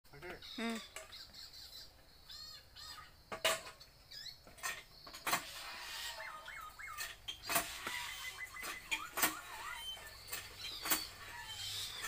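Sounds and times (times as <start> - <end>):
man imitating bird calls: 0.2 - 1.8.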